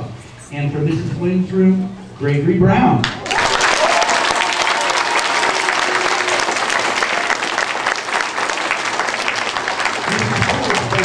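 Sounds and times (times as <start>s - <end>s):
children applauding: 3.2s - 11.0s.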